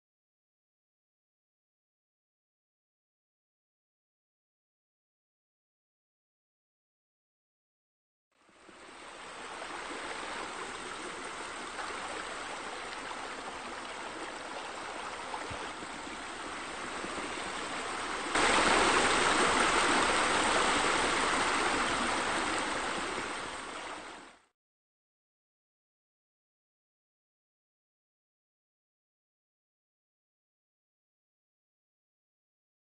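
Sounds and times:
water pouring into a pool: 9.2 - 23.9.

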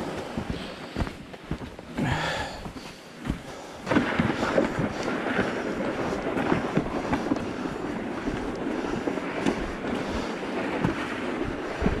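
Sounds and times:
footsteps crunching on gravel: 0.0 - 12.0
wind noise on microphone: 3.4 - 12.0.

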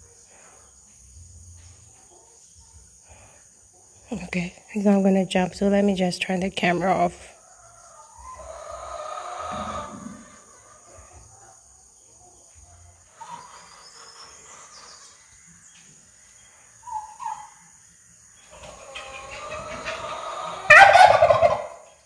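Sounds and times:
turkey gobbling: 8.2 - 10.5, 16.8 - 17.6, 18.6 - 21.9.

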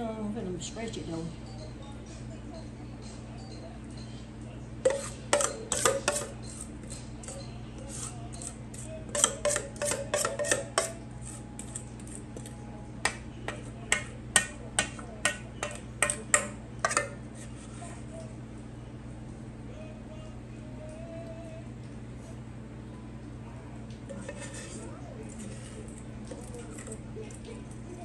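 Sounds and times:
utensil clinking on metal bowl: 4.8 - 17.5, 24.1 - 28.0.

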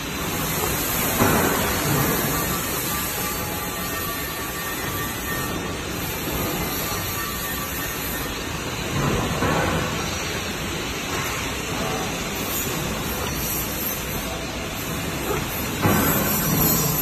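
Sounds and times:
workshop machinery running: 0.0 - 17.0.

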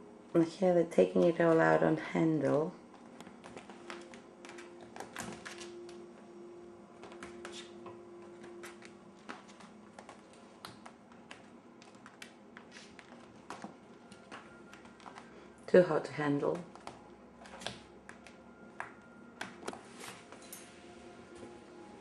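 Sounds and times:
faint steady hum: 0.0 - 22.0
claws scrabbling on wooden floor: 7.0 - 15.4
kittens scratching paper: 8.4 - 15.3.

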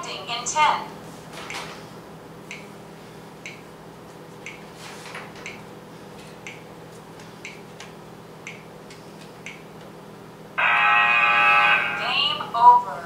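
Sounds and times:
faint steady hum: 0.0 - 13.0
countdown clock ticks: 2.5 - 2.7, 3.4 - 3.6, 6.4 - 6.6, 8.4 - 8.7, 9.4 - 9.6.

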